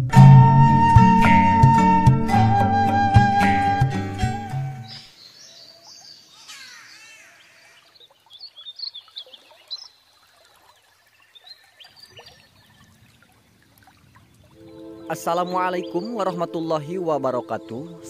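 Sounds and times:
birds chirping: 0:04.4 - 0:18.0.

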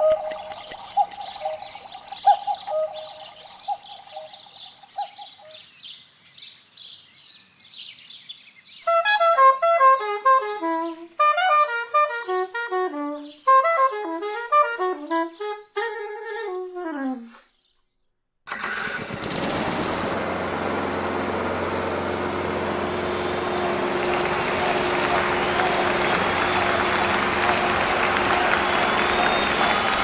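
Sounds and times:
bird-like chirping: 0:00.0 - 0:08.9, 0:23.2 - 0:30.0.

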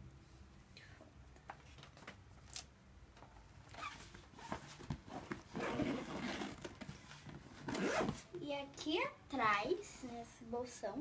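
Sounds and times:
fabric backpack being handled: 0:03.7 - 0:08.3.

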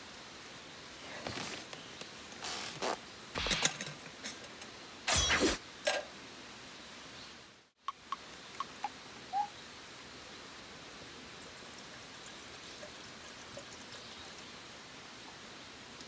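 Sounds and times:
water trickling into kettle: 0:11.0 - 0:14.6.

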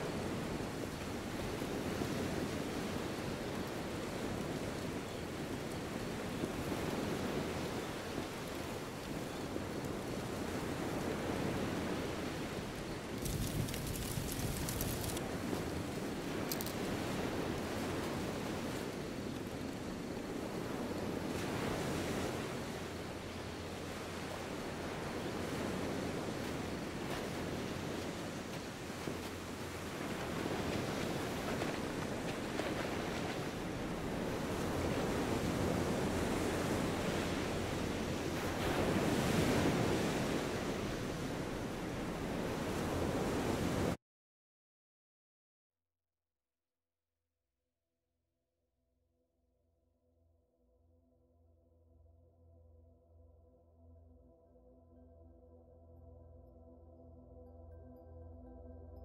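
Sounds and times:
ocean waves breaking on beach: 0:00.0 - 0:44.0.

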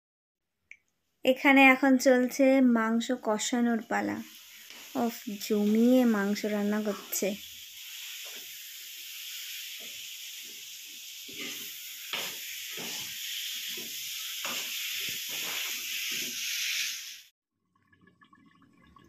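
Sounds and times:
chicken sizzling in oil: 0:02.4 - 0:17.3
spatula scraping and stirring: 0:04.2 - 0:17.0.

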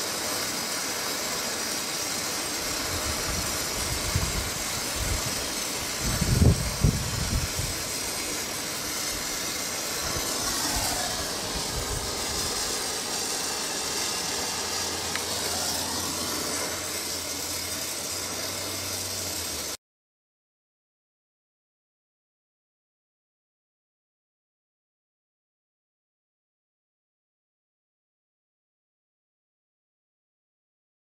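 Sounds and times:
gas torch flame hissing: 0:00.0 - 0:19.8.

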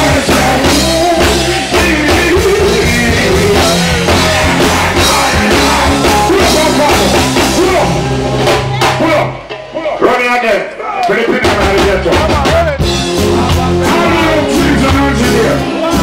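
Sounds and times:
person singing: 0:00.0 - 0:08.0, 0:11.5 - 0:16.0
live band playing: 0:00.0 - 0:16.0.

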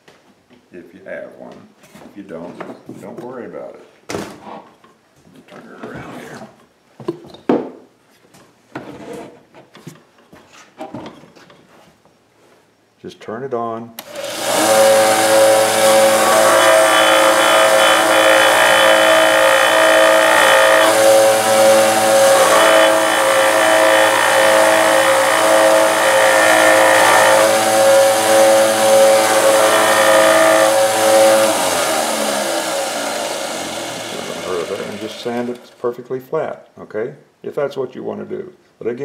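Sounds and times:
sander motor whine: 0:14.0 - 0:35.7
wood rasping against sanding disc: 0:14.2 - 0:35.6.

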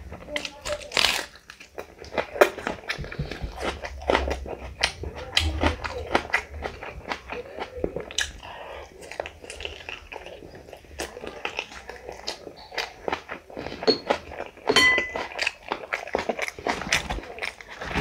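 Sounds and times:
wet smacking and chewing: 0:00.0 - 0:18.0
clicks and crunches: 0:00.2 - 0:05.8, 0:15.2 - 0:18.0.

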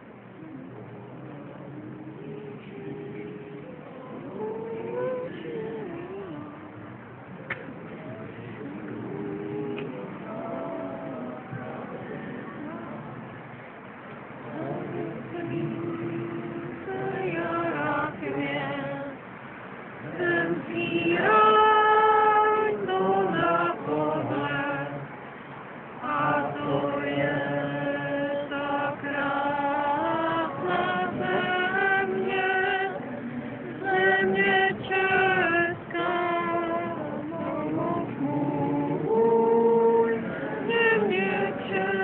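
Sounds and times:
voices singing a slow song: 0:00.0 - 0:42.0
woman singing: 0:01.7 - 0:06.8, 0:14.5 - 0:19.2, 0:20.2 - 0:25.0, 0:26.0 - 0:33.0, 0:33.8 - 0:42.0.

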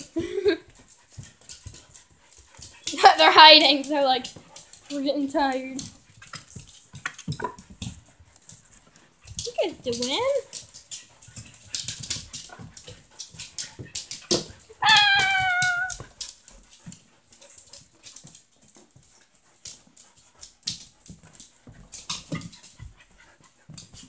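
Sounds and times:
dogs scuffling on wooden floor: 0:00.0 - 0:24.0
dog whining: 0:14.8 - 0:16.1.

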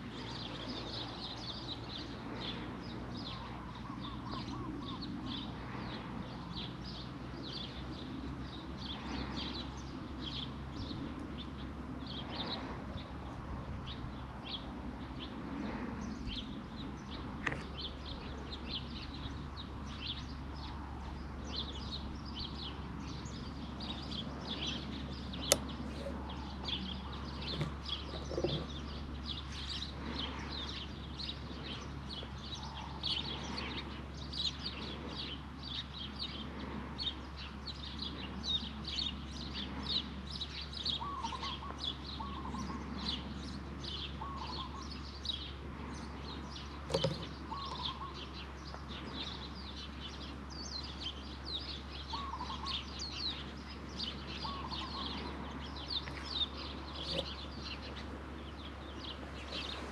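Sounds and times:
songbirds chirping: 0:00.0 - 0:59.9.

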